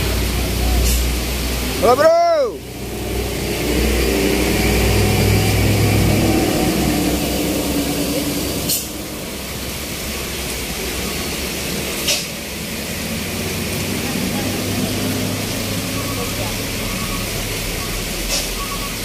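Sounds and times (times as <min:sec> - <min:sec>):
heavy rain on road: 0:00.0 - 0:19.0
truck engine rumble: 0:00.0 - 0:19.0
brief sharp hisses: 0:00.8 - 0:01.1, 0:08.6 - 0:09.0, 0:12.0 - 0:12.4, 0:18.3 - 0:18.7.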